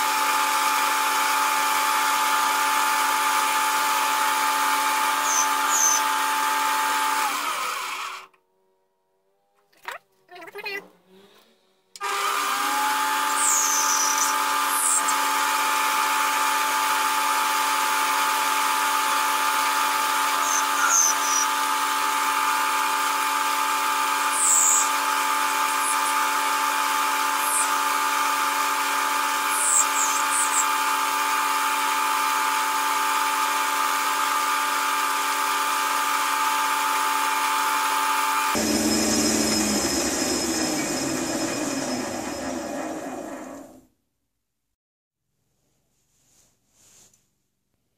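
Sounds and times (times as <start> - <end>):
lathe motor whine: 0.0 - 8.4, 12.0 - 43.8
high squeaks: 5.2 - 6.0, 13.3 - 15.2, 20.4 - 21.6, 24.2 - 28.3, 29.4 - 30.8.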